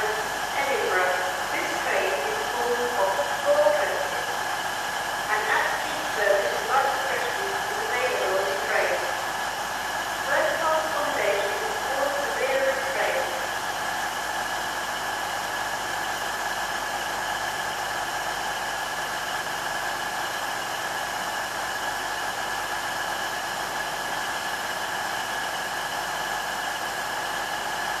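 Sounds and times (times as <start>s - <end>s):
mechanical hum with whine: 0.0s - 28.0s.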